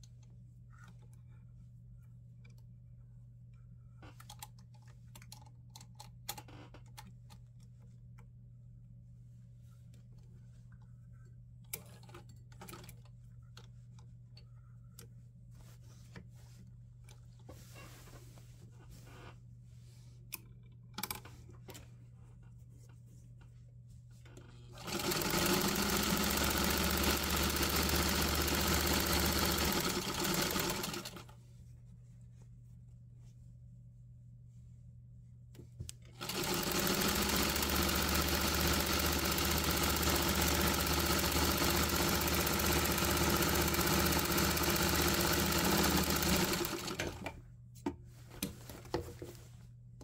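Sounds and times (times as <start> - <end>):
sewing machine stitching: 24.8 - 31.2, 36.2 - 47.3.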